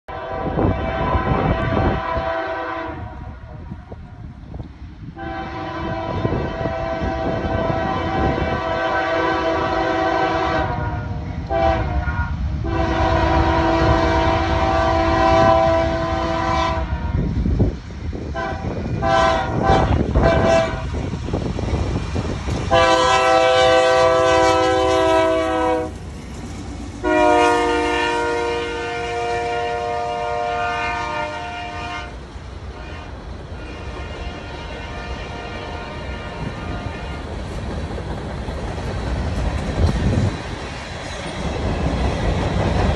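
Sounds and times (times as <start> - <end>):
train horn blasts: 0.1 - 3.8, 5.2 - 17.3, 18.3 - 21.1, 22.7 - 26.0, 27.0 - 37.4
train rumbling on rails: 0.1 - 42.9.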